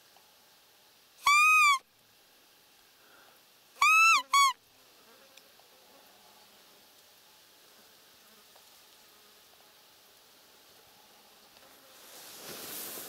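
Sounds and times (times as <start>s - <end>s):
deer call whistled squeaks: 1.2s - 1.8s, 3.8s - 4.6s.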